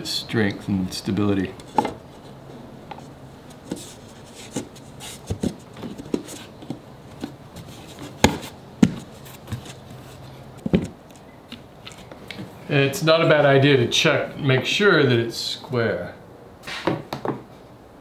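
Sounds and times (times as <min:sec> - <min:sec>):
hands knocking and rubbing plywood: 0:02.9 - 0:10.0, 0:10.6 - 0:11.0.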